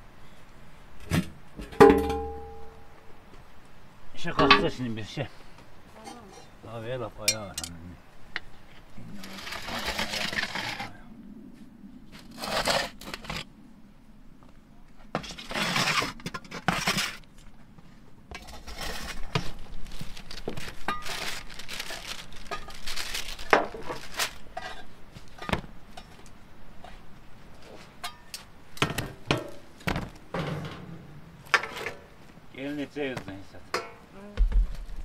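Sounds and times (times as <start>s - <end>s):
metal pans knocking on wood: 1.8s - 2.7s
rustling: 8.4s - 13.6s, 14.5s - 35.0s.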